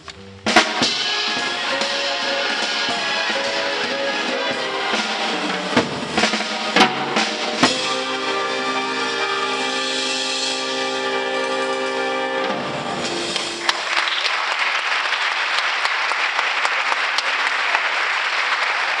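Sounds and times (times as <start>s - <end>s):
jazz big band chord: 0.1s - 13.7s
audience applause: 13.4s - 19.0s.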